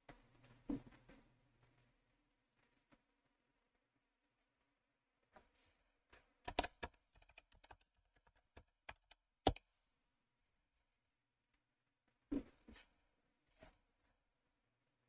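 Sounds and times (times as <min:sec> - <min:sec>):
keyboard typing clicks: 0:06.5 - 0:09.6.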